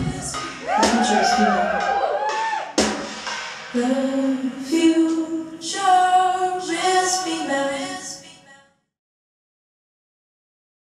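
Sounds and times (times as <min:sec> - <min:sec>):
women singing a cappella: 0:00.0 - 0:01.6, 0:03.7 - 0:08.8.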